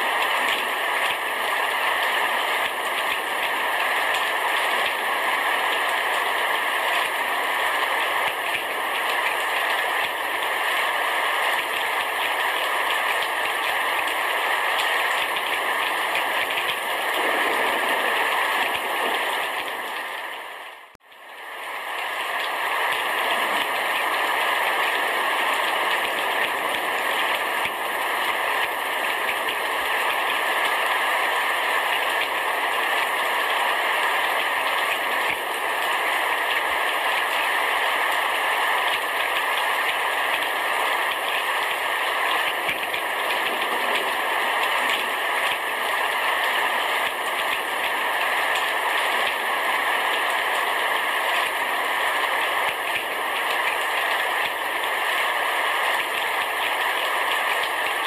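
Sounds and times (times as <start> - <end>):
heavy rain on a roof: 0.0 - 58.0.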